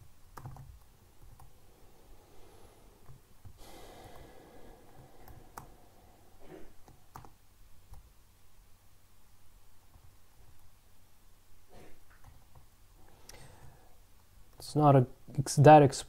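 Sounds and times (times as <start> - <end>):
computer keys clicking: 0.3 - 1.5, 6.8 - 8.1
person breathing out: 1.6 - 7.1, 13.0 - 14.0.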